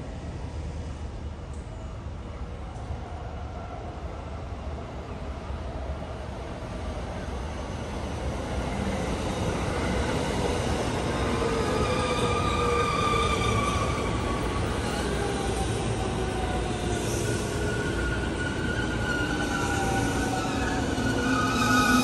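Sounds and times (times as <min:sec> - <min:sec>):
electric train rumbling: 0:00.0 - 0:22.0.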